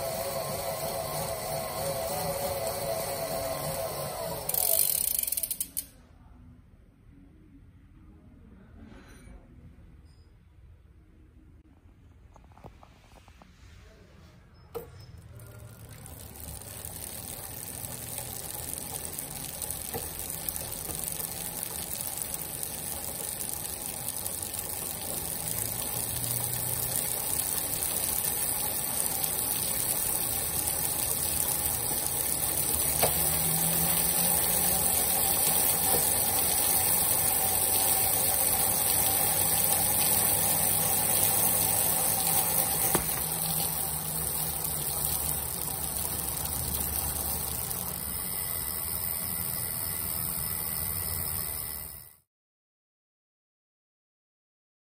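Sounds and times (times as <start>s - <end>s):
bicycle trainer whirring: 0.0s - 6.0s, 14.7s - 52.3s.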